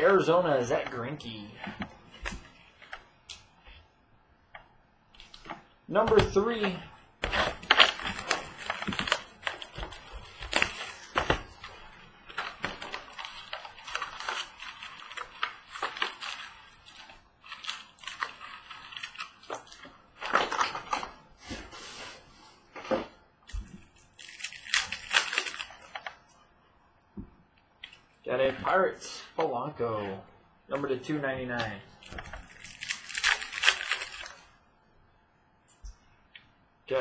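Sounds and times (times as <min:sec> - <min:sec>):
wrappers and cardboard crinkling: 0:05.1 - 0:26.3, 0:31.6 - 0:34.6.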